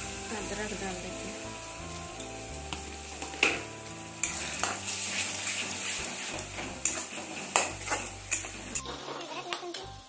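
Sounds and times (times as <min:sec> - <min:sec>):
food sizzling in hot oil: 0:00.0 - 0:10.0
metal spatula scraping pan: 0:04.2 - 0:09.6.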